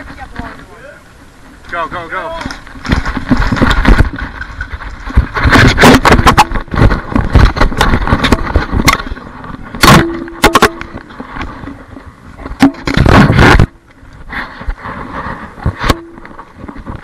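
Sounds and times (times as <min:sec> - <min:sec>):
camera handling rustling and knocks: 0:02.4 - 0:11.6.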